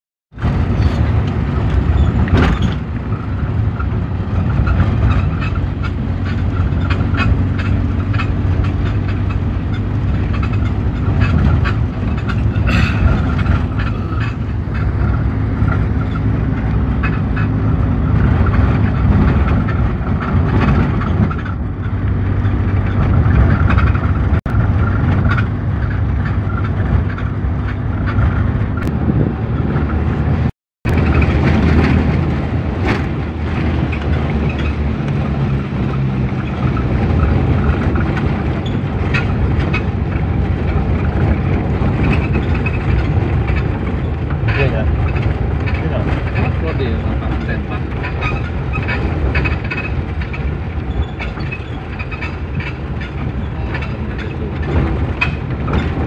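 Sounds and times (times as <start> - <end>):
engine and road rumble: 0.3 - 56.0
knocks and rattles: 0.4 - 56.0.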